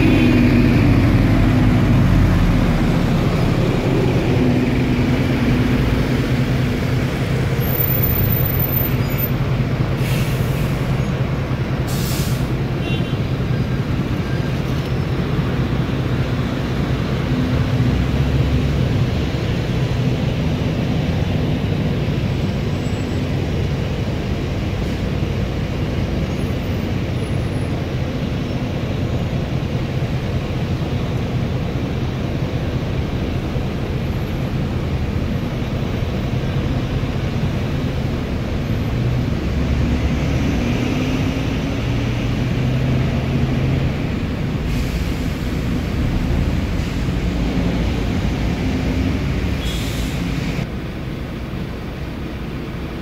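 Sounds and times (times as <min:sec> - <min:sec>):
bus engines running: 0:00.0 - 0:53.0
tyres on wet road: 0:00.0 - 0:53.0
air brake hisses: 0:10.0 - 0:10.9, 0:11.9 - 0:12.6, 0:44.6 - 0:45.8, 0:49.6 - 0:50.5.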